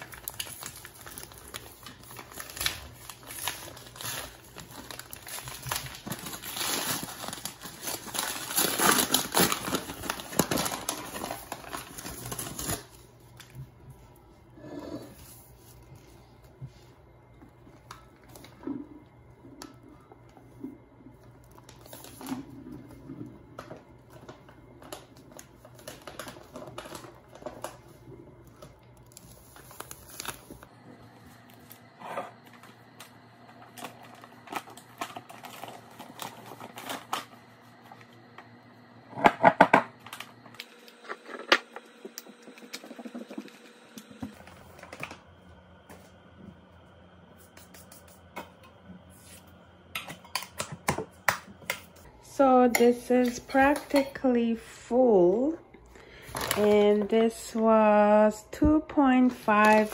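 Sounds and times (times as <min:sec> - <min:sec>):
paper bag crinkling: 0:00.0 - 0:13.5, 0:24.1 - 0:30.7, 0:33.6 - 0:37.4, 0:59.4 - 0:59.9.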